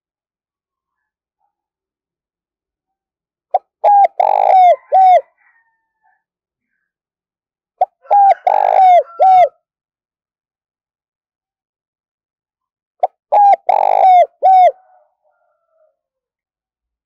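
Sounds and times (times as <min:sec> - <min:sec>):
dove cooing: 0:03.6 - 0:05.4, 0:07.8 - 0:09.5, 0:13.3 - 0:15.0.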